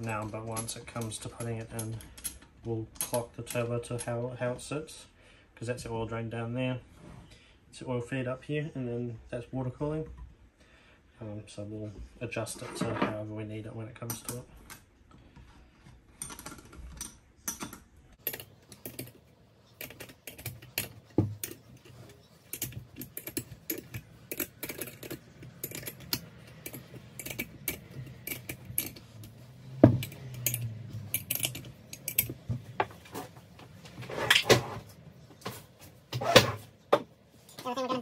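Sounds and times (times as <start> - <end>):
small metal clicks and clinks: 16.2 - 29.4, 30.0 - 32.4
metal clatter: 16.2 - 33.4.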